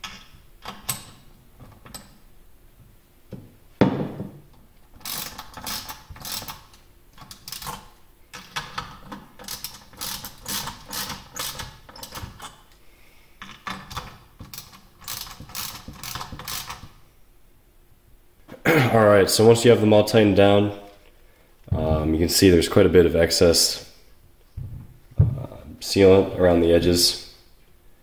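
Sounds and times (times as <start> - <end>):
loud knock: 3.8 - 4.4
socket ratchet clicking: 5.0 - 12.6, 13.5 - 17.0.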